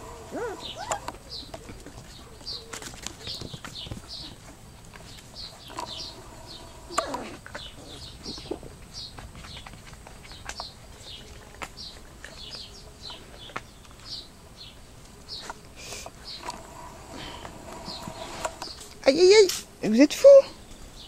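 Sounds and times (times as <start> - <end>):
puppy yelp: 0.1 - 1.2.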